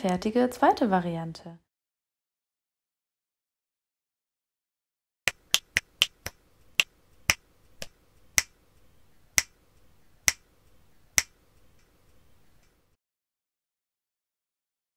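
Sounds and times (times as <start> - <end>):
sharp snapping clicks: 11.2 - 11.9.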